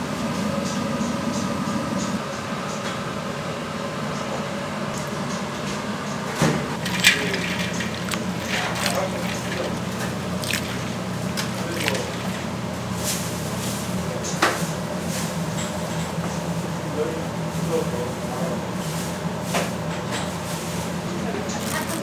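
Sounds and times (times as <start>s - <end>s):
low machine hum: 5.0s - 19.4s
wet squishing of food by hand: 6.8s - 13.6s.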